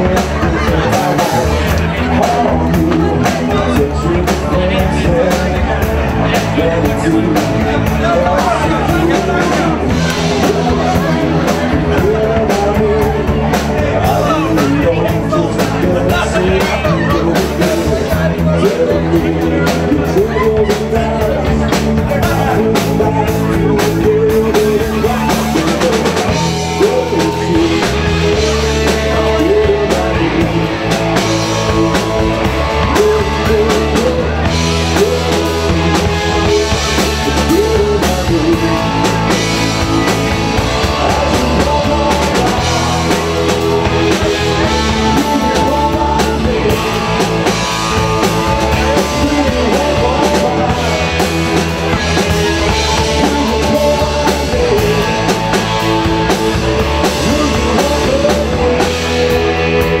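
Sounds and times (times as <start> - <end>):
drum kit: 0.0 - 60.0
electric guitar: 0.0 - 60.0
live rock band playing: 0.0 - 60.0.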